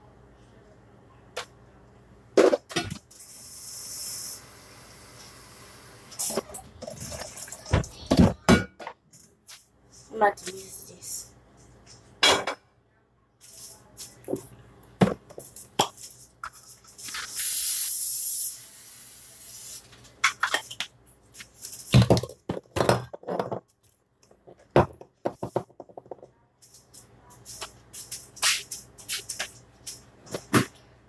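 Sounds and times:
kitchen clatter of knocks and clinks: 6.2s - 9.2s, 12.0s - 12.6s, 21.8s - 26.3s
spraying hiss: 17.1s - 19.9s.

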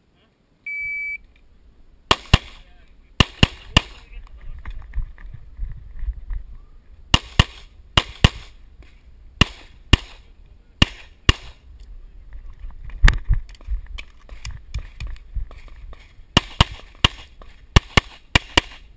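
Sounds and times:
pistol shots: 2.1s - 2.6s, 3.2s - 4.1s, 7.1s - 8.6s, 9.4s - 11.6s, 16.4s - 18.9s.

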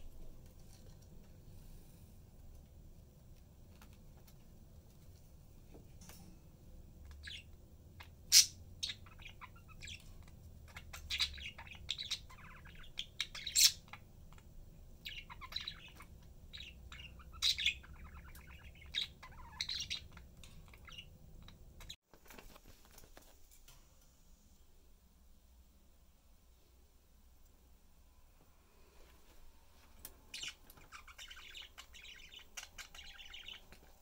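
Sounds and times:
budgerigars chirping and chattering: 7.1s - 22.0s, 30.3s - 34.0s.

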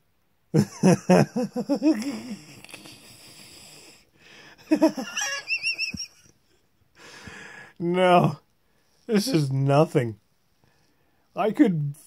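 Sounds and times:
man laughing: 0.6s - 2.6s, 4.6s - 6.3s.

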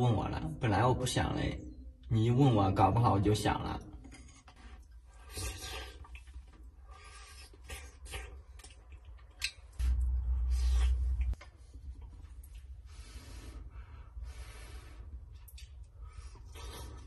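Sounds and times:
low rumble: 9.8s - 14.0s.

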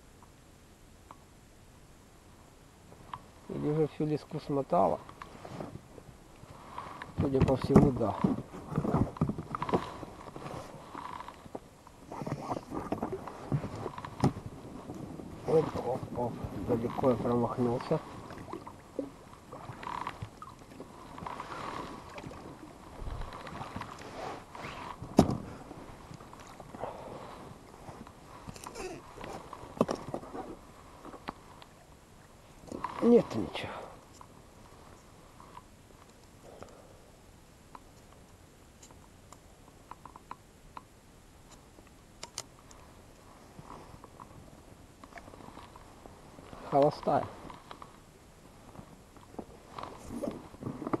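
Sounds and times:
oar strokes: 4.8s - 35.7s, 45.1s - 51.0s
fishing tackle clicks and taps: 37.7s - 40.9s.

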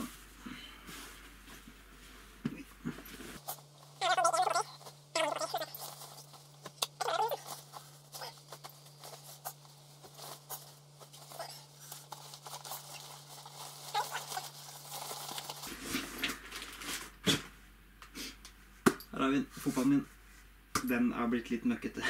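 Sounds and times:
nylon bag rustling: 3.0s - 17.2s.

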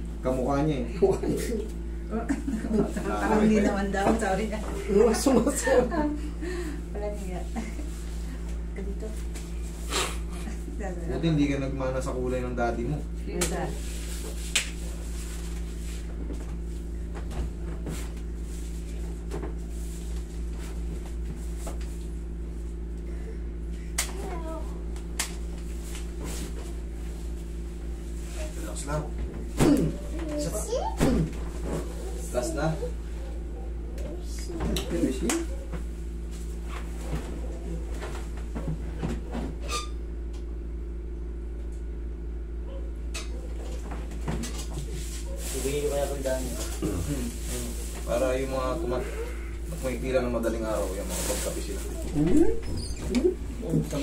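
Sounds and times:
steady low hum: 0.0s - 54.0s
faint rustles: 44.5s - 54.0s.

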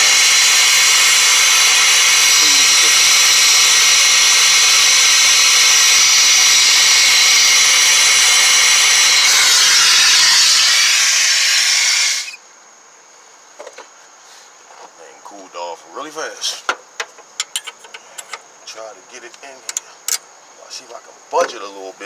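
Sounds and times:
gas torch flame hissing: 0.0s - 12.4s.

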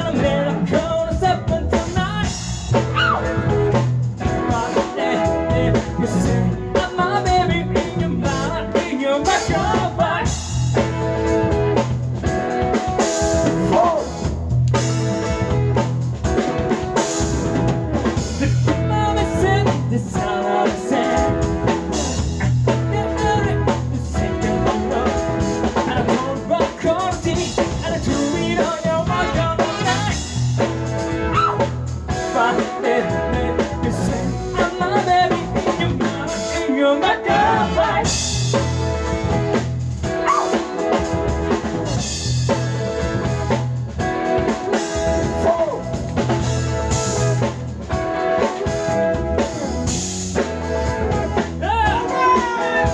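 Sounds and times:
man singing: 0.0s - 11.0s, 13.3s - 14.4s, 18.3s - 38.8s, 45.0s - 46.0s, 51.6s - 52.9s
drum kit beat: 0.0s - 52.9s
electric guitar: 0.0s - 52.9s
live band music: 0.0s - 52.9s.

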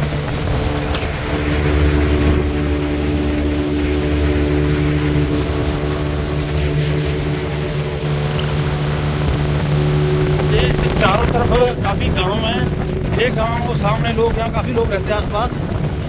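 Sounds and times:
motorboat engine running: 0.0s - 16.0s
water churning in wake: 0.0s - 16.0s.

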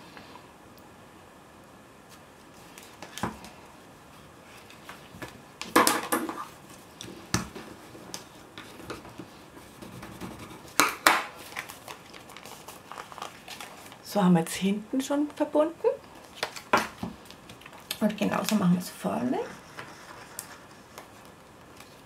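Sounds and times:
paper rustling: 2.1s - 3.6s, 6.3s - 14.1s, 16.0s - 18.6s, 19.5s - 22.0s.

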